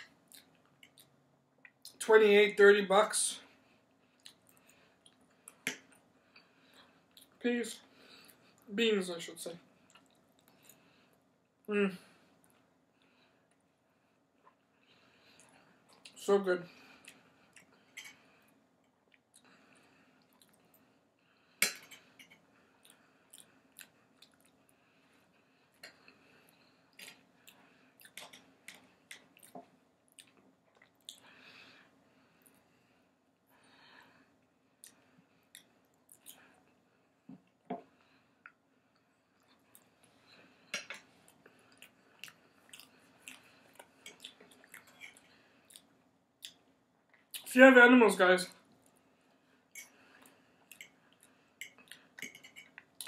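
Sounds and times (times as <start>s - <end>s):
faint chewing: 0.0s - 2.0s, 4.0s - 7.4s, 9.8s - 11.6s, 14.4s - 16.2s, 16.8s - 32.7s, 34.7s - 47.5s, 48.7s - 53.0s.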